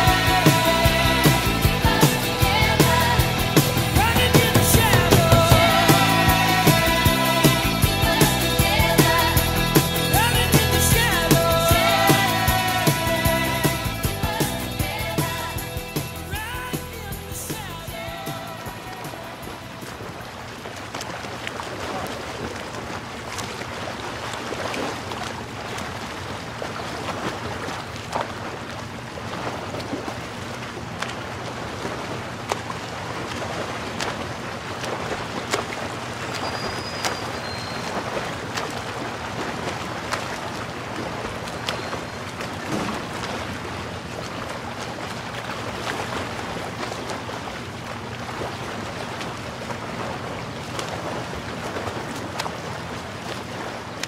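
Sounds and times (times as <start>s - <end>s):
motorboat engine running: 0.0s - 20.6s
wind and water rush: 0.0s - 54.0s.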